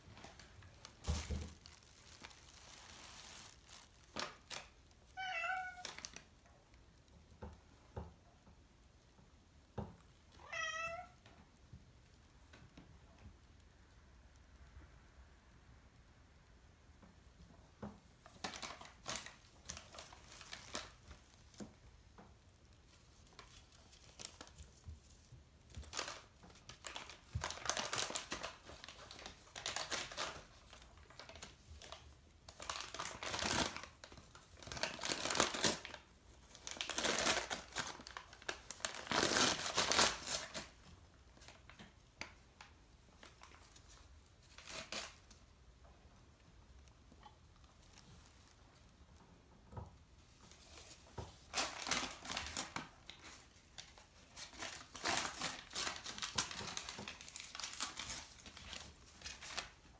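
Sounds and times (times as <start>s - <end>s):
cat tearing newspaper: 0.3s - 6.2s, 18.3s - 21.6s, 25.8s - 41.8s, 43.2s - 45.4s, 50.5s - 59.8s.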